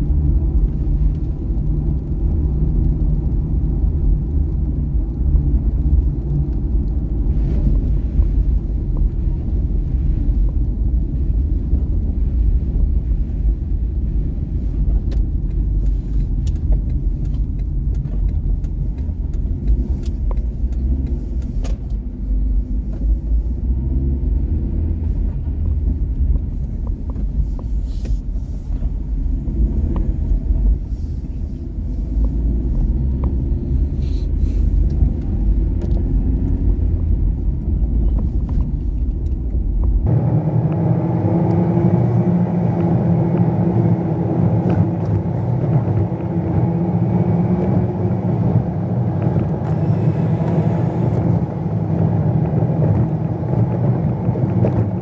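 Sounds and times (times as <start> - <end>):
car engine and road rumble: 0.0 - 55.0
raindrops ticking on windshield: 0.1 - 40.1.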